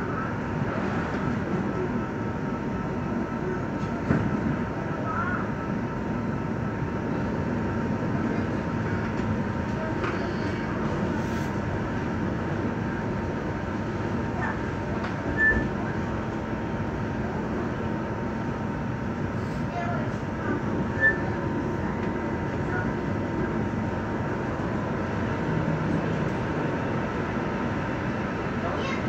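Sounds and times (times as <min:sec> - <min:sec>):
train whine: 0:00.0 - 0:29.0
wheel squeal: 0:15.4 - 0:15.7, 0:21.0 - 0:21.3.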